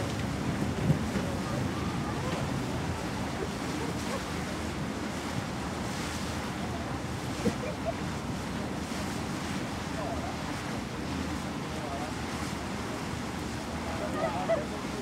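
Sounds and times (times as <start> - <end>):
rushing water: 0.0 - 15.0
wind on microphone: 0.0 - 15.0.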